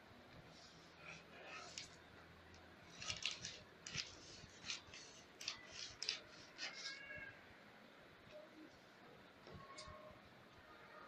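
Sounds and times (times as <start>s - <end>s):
scissors snipping paper: 2.9s - 7.0s.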